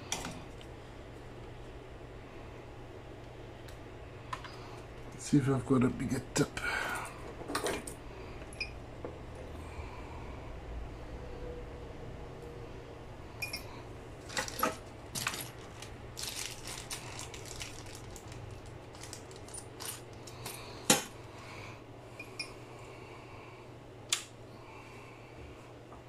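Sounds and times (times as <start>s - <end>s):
steady low hum: 0.0s - 26.0s
small metal parts clinking: 14.2s - 21.1s.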